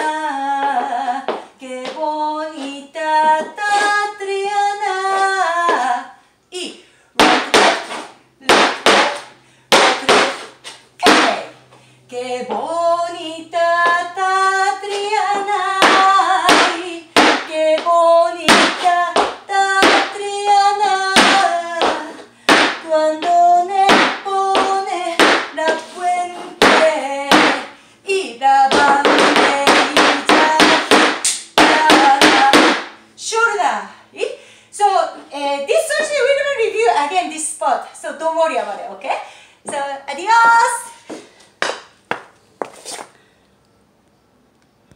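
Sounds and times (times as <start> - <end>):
woman singing: 0.0 - 10.4, 11.0 - 41.0
shoes stamping on wooden floor: 7.2 - 10.4, 15.0 - 20.2, 20.8 - 25.9, 26.6 - 27.7, 28.7 - 32.9.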